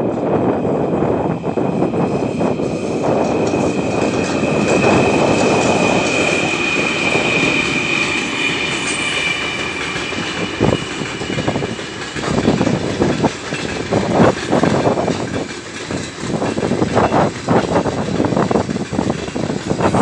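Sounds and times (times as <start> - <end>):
freight train rumble: 0.0 - 20.0
locomotive high whine: 0.0 - 20.0
wheels clattering over rail joints: 3.2 - 20.0.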